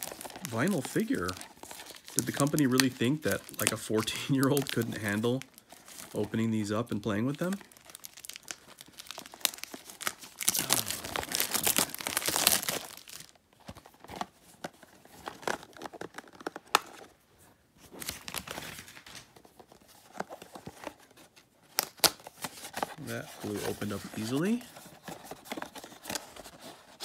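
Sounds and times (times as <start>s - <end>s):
plastic wrapper crinkling: 0.0s - 17.2s, 17.9s - 27.0s
box handling rustles and clicks: 10.8s - 17.2s, 17.9s - 27.0s.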